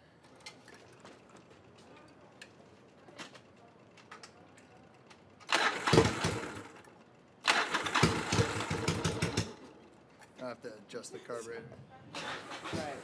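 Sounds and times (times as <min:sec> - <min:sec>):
motorcycle engine starting: 0:05.4 - 0:09.8, 0:12.1 - 0:13.0.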